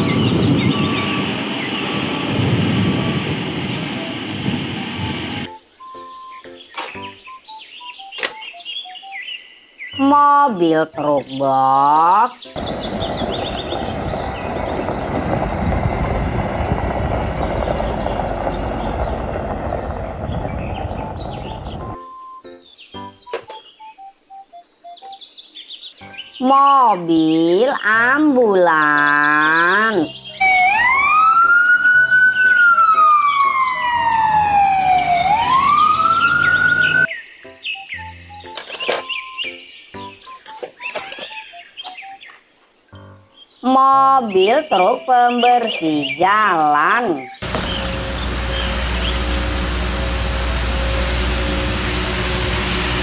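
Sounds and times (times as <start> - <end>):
ambulance siren wailing: 0.0 - 6.2, 30.3 - 37.1
truck diesel engine running: 12.6 - 22.0, 47.4 - 53.0.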